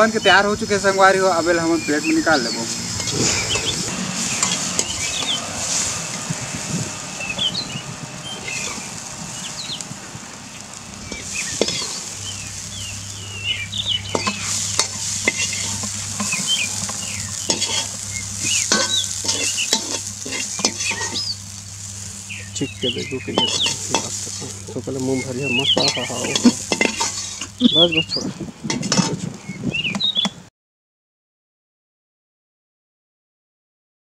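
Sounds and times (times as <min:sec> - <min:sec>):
birds chirping: 0:00.0 - 0:30.5
spatula scraping and clinking on pan: 0:02.7 - 0:09.9, 0:10.5 - 0:22.3, 0:23.3 - 0:24.7, 0:25.4 - 0:27.6, 0:28.6 - 0:29.3.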